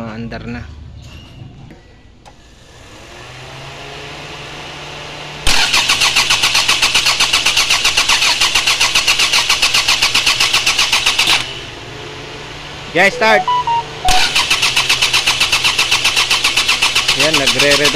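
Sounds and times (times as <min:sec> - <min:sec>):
starter motor cranking engine: 0:14.4 - 0:17.9.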